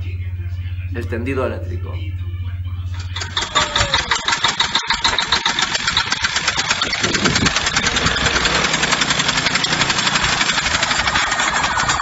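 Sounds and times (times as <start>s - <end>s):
small motorcycle engine running: 2.9s - 12.0s.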